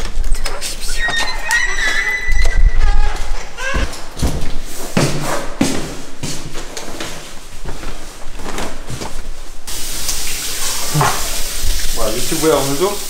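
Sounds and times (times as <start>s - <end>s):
steady hiss: 9.7s - 13.0s.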